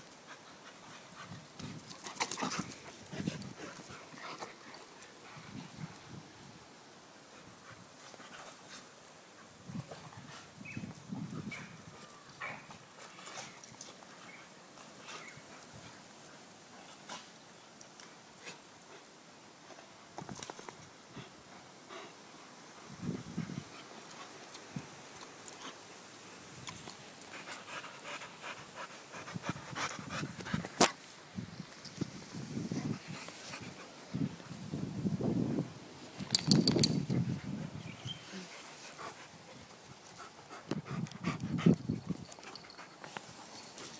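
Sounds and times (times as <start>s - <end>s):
dog panting: 27.3s - 30.7s, 38.5s - 43.4s.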